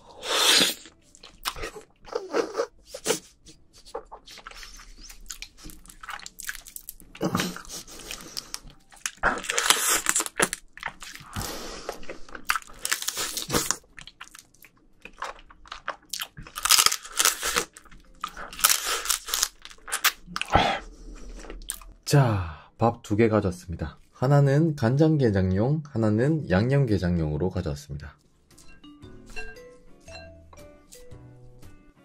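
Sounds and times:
crunching bites and wet chewing: 0:00.4 - 0:02.0, 0:03.8 - 0:20.6.

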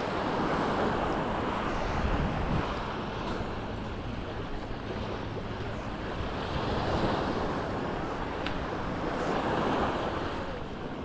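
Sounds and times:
sea waves breaking on shore: 0:00.0 - 0:11.0
wind rumbling on microphone: 0:00.0 - 0:11.0.

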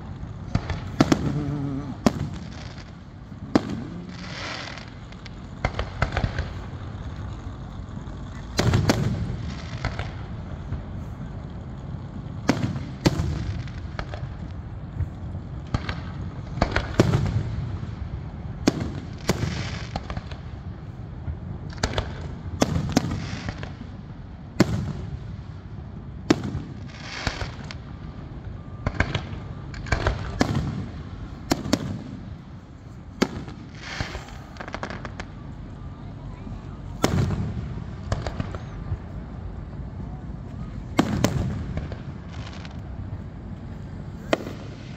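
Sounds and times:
fireworks hissing: 0:00.0 - 0:11.3, 0:26.8 - 0:27.8, 0:29.8 - 0:35.7, 0:40.6 - 0:44.9
low rumble: 0:00.0 - 0:12.5
fireworks bangs: 0:00.0 - 0:24.0, 0:24.6 - 0:25.6, 0:26.3 - 0:44.9.

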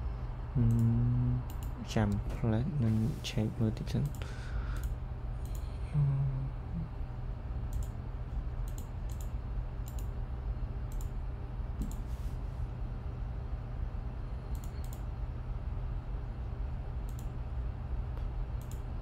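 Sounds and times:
brief low hum: 0:00.0 - 0:04.2
low electrical hum: 0:00.0 - 0:19.0.

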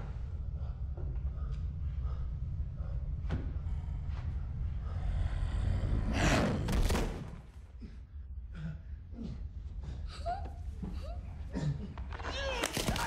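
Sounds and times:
low rumble: 0:00.0 - 0:10.4.

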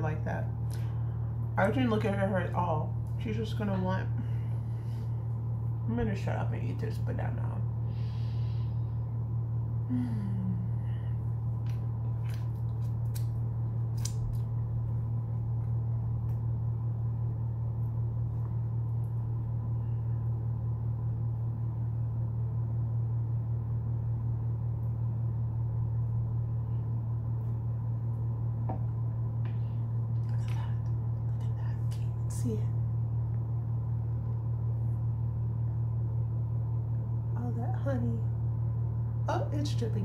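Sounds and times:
low hum: 0:00.0 - 0:40.0
banana being peeled: 0:11.6 - 0:16.5.

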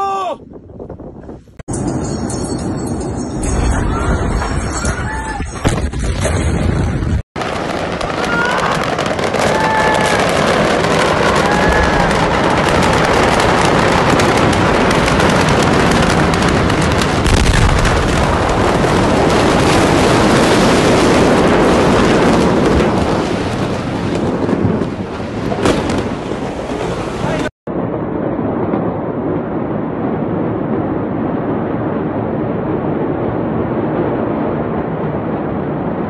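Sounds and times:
fire crackling and popping: 0:05.5 - 0:27.5.

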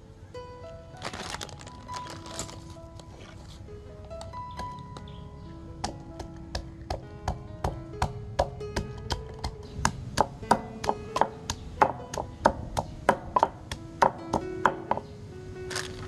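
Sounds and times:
wooden pestle pounding in mortar: 0:05.8 - 0:15.0.

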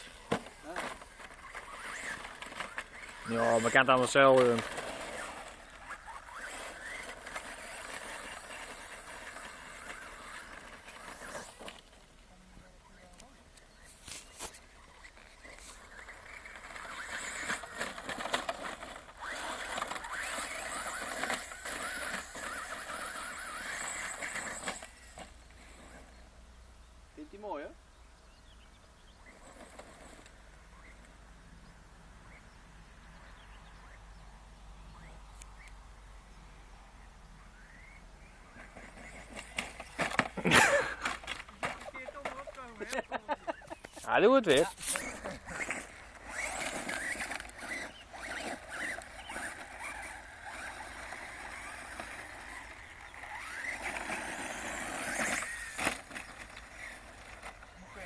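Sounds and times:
electric motor whining: 0:00.0 - 0:12.1, 0:15.0 - 0:26.3, 0:43.8 - 0:58.0
faint bird chirps: 0:12.4 - 0:17.4, 0:20.6 - 0:29.6, 0:30.6 - 0:40.0.

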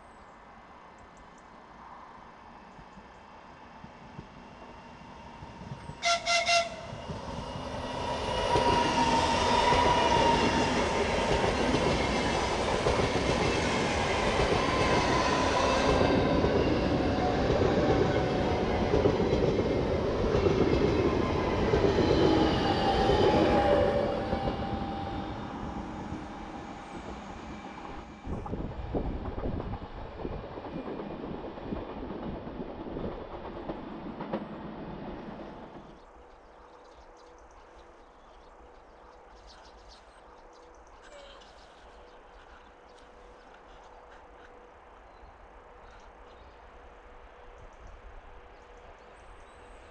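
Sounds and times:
train passing at speed: 0:00.0 - 0:40.9, 0:41.8 - 0:49.9
train horn toots: 0:06.0 - 0:07.0.

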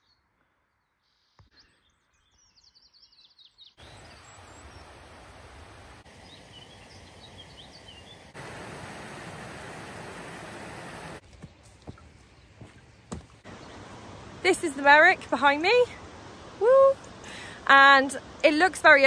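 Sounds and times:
small birds chirping: 0:00.0 - 0:05.0, 0:06.0 - 0:08.6, 0:10.8 - 0:16.5
hiss of open air: 0:03.8 - 0:11.2.

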